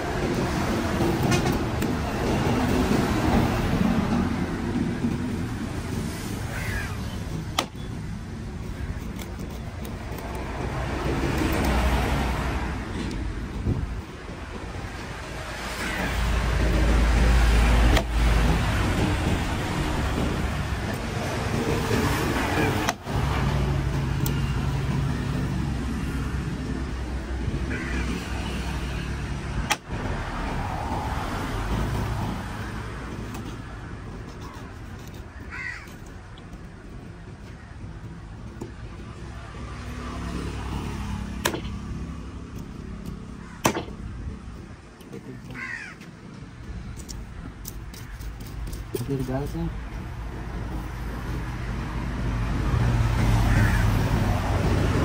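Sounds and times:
crow cawing: 6.5 - 7.2, 27.7 - 28.2, 35.3 - 36.1, 43.3 - 43.7, 45.3 - 46.1, 53.4 - 54.1
vehicle passing low rumble: 10.3 - 34.2, 49.5 - 55.0
sharp knocks on cutting block: 41.4 - 41.8, 43.6 - 44.0.

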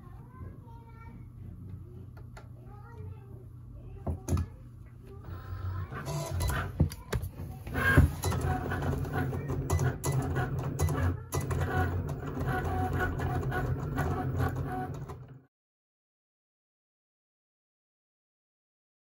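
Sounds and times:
cutting machine motors humming: 5.1 - 15.5.

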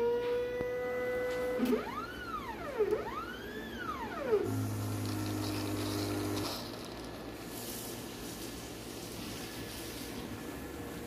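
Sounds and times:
motor whining in sweeps: 3.5 - 6.8
pump humming: 4.1 - 6.8.

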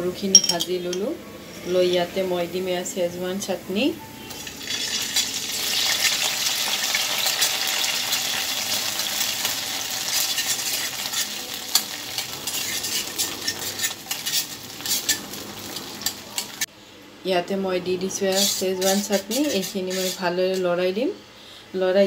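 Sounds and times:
food sizzling in hot oil: 1.7 - 16.7, 18.3 - 20.6
steel spoon scraping pan: 9.9 - 16.7, 18.2 - 20.7.

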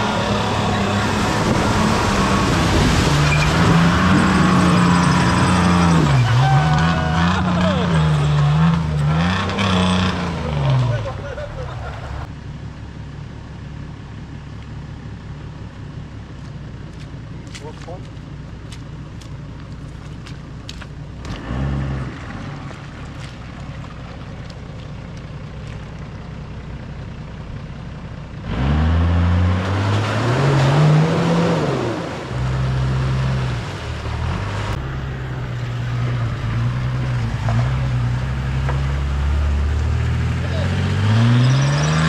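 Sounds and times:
truck engine running: 22.2 - 28.5.

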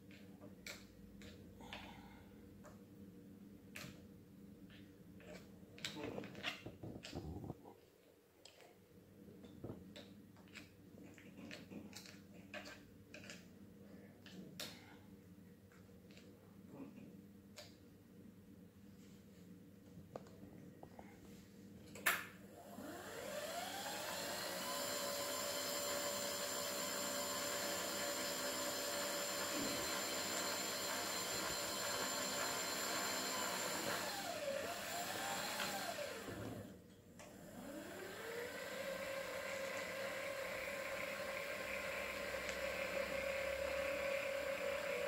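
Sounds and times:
electric motor whine: 22.7 - 36.7, 37.5 - 45.0.

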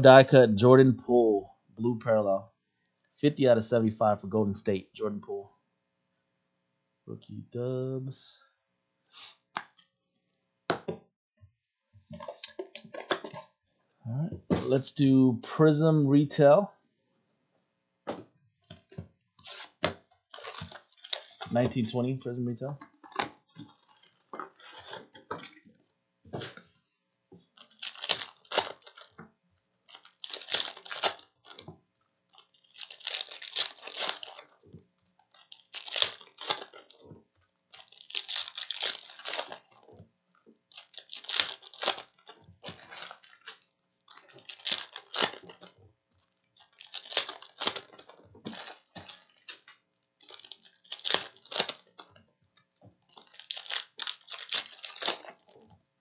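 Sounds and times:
plastic wrappers crinkling and tearing: 12.1 - 13.5, 19.4 - 22.2, 23.1 - 25.2, 27.4 - 29.2, 29.8 - 40.0, 40.6 - 55.8.

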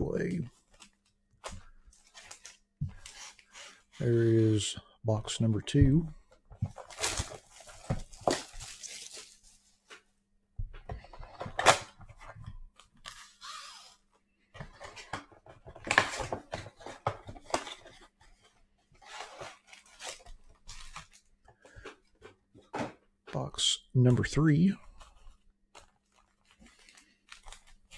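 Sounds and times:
plastic wrapping crinkling: 6.7 - 10.0, 25.7 - 27.9.

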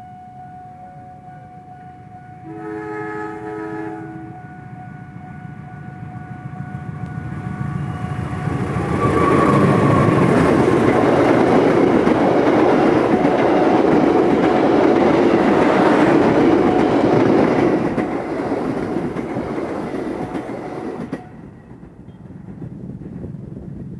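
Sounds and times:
train passing on rails: 0.0 - 23.9.

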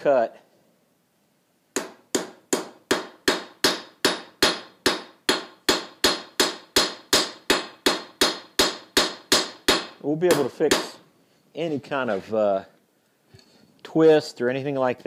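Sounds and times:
hammer striking steel on anvil: 1.8 - 11.0.

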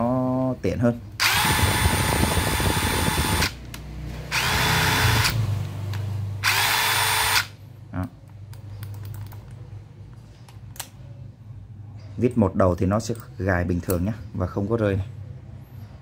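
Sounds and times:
impact driver whining: 1.2 - 3.6, 4.3 - 5.4, 6.4 - 7.6.

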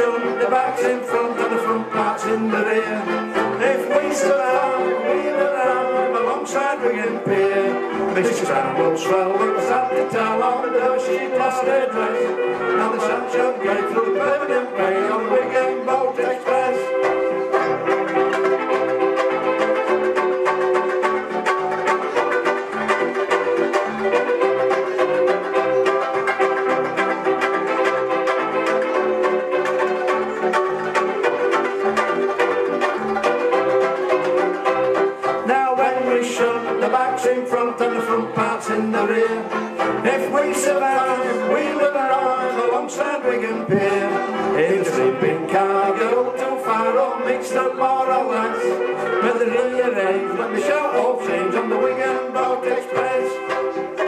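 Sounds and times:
men singing: 0.0 - 17.3, 35.2 - 54.0
banjo ukuleles strummed: 0.0 - 54.0.

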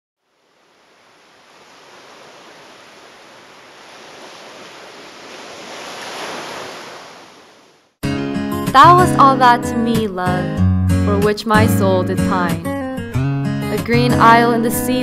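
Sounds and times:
ocean surf on beach: 0.2 - 8.0.

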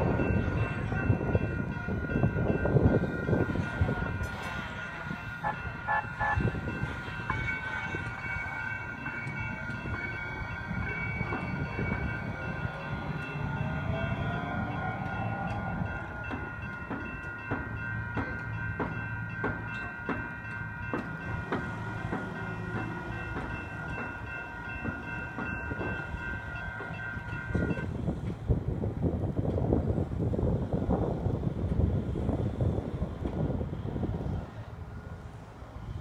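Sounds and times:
electronic crossing bells ringing: 0.0 - 27.9
light rail train passing: 0.0 - 36.0.

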